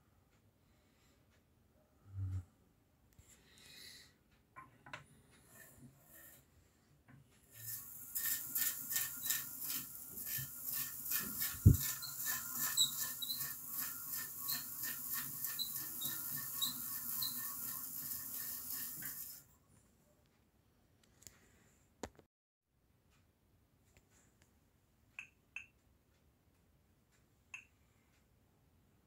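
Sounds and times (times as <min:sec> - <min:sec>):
hand-cranked machine rasping rattle: 0:07.6 - 0:19.4.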